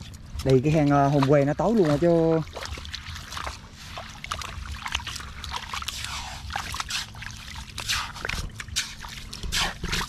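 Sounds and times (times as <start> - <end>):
small water splashes: 0.0 - 10.0
wet mud squelches: 0.0 - 10.0.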